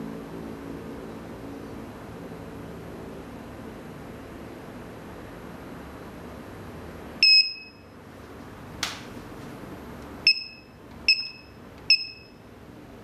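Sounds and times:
alarm keypad beeps: 7.2 - 7.8, 10.3 - 12.4.

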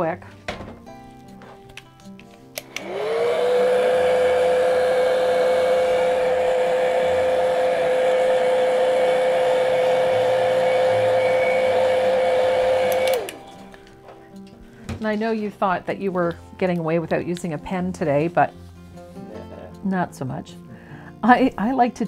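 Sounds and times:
heat dryer motor whine and air: 2.6 - 13.8.

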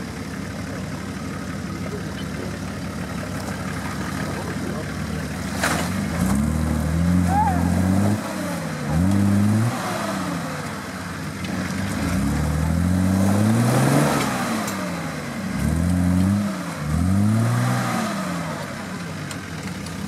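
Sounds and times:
off-road vehicle engine revving: 0.0 - 20.0.

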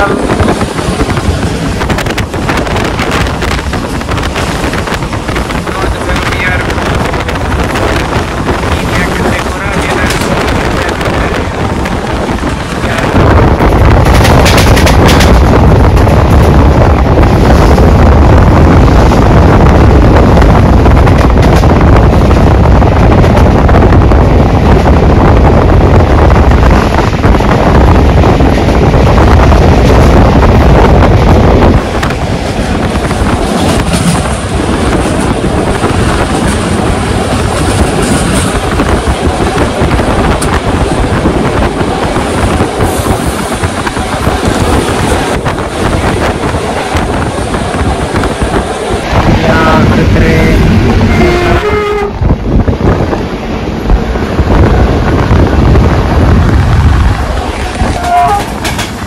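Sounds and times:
train running on rails: 0.0 - 59.0
wind buffeting microphone: 0.0 - 59.0.

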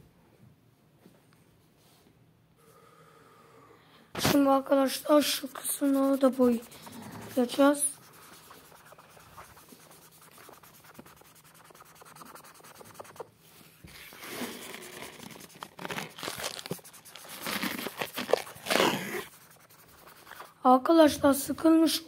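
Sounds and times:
marker scratching on paper: 4.2 - 20.6.

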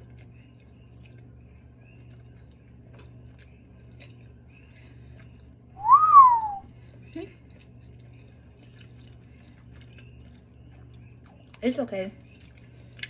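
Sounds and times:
person chewing quietly: 0.0 - 13.0.

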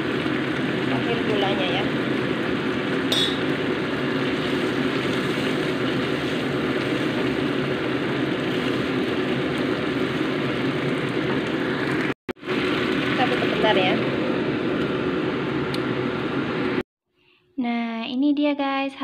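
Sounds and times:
sauce simmering and bubbling: 1.9 - 13.4.

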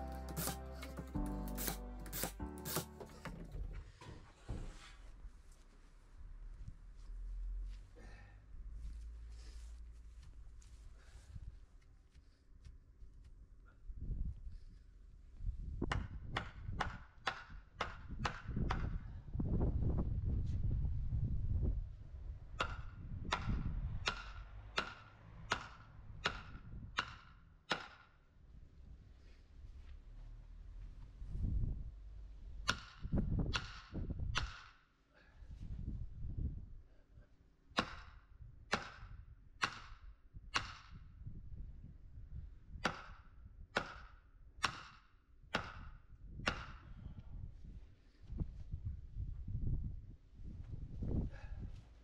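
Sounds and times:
hammer striking wooden post: 0.2 - 3.6, 15.9 - 18.9, 22.6 - 28.1, 32.6 - 34.8, 37.8 - 40.9, 42.8 - 46.8.

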